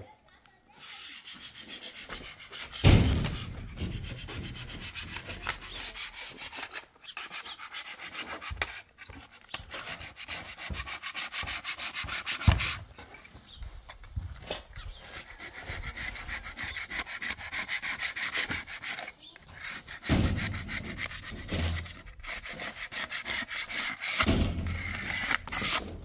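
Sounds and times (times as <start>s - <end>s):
sandpaper rasping on concrete: 0.7s - 12.9s, 14.8s - 25.8s
dull thumps: 2.8s - 5.7s.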